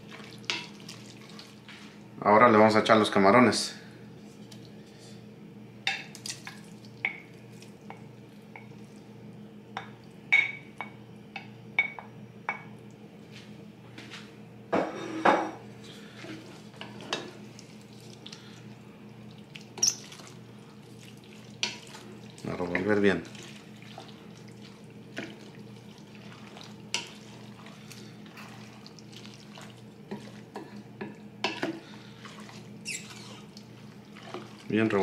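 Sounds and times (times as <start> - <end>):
stirring wet food: 0.0 - 2.1, 6.1 - 9.0, 15.8 - 35.0
faint steady hum: 0.0 - 35.0
spoon scraping and knocking dishes: 14.8 - 15.6.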